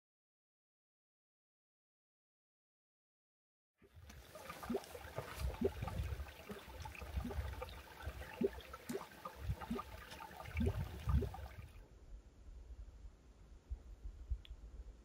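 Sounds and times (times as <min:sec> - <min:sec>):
stream trickling over rocks: 0:03.9 - 0:11.8.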